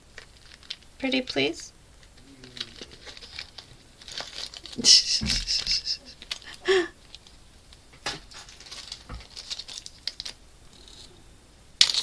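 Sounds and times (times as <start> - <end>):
plastic bag rustling: 0.0 - 0.9, 2.1 - 7.3, 8.1 - 10.4.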